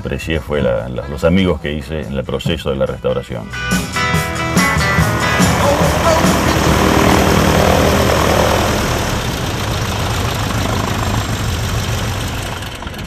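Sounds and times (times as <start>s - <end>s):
biplane engine idling: 3.6s - 13.0s.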